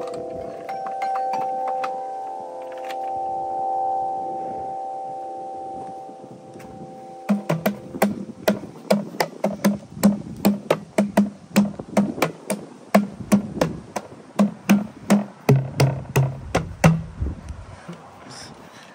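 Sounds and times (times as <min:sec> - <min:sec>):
tube drums struck by hand: 0:07.2 - 0:17.2.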